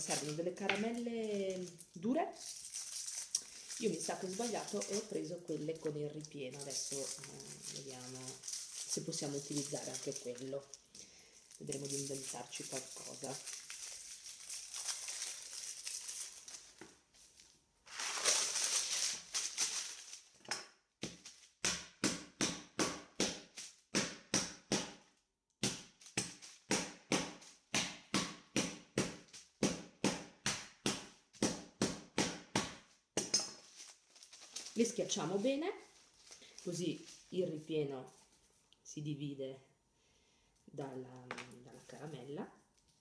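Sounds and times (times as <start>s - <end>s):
candy wrappers crinkling: 0.0s - 20.4s, 25.9s - 26.7s, 33.6s - 38.4s
mallet crushing candies: 20.4s - 33.7s.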